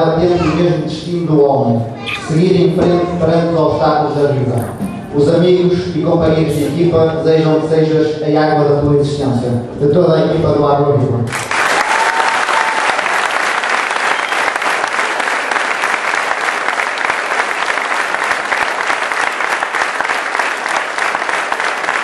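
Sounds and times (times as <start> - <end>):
audience applauding: 11.3 - 22.0.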